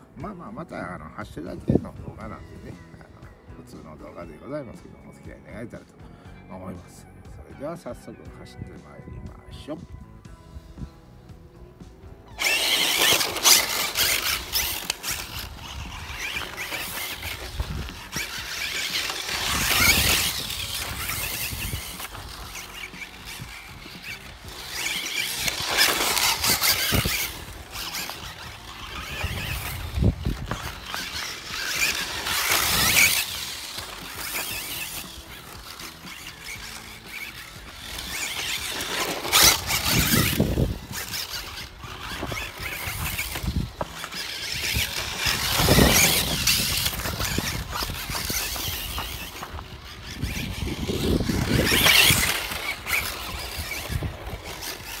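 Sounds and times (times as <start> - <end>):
rc car motor whining: 0.5 - 6.4, 10.2 - 55.0
tyres scrabbling over gravel: 12.2 - 55.0.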